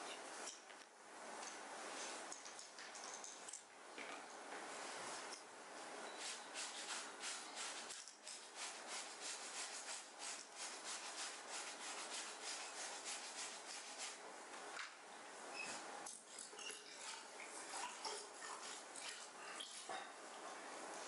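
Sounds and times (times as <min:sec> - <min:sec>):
scrubbing fabric: 0:06.2 - 0:14.2, 0:16.3 - 0:20.2.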